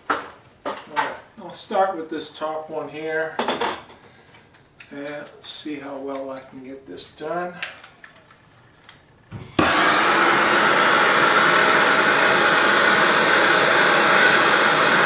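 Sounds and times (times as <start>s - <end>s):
torch lighting pop: 9.3s - 9.9s
torch flame hissing: 9.4s - 15.0s.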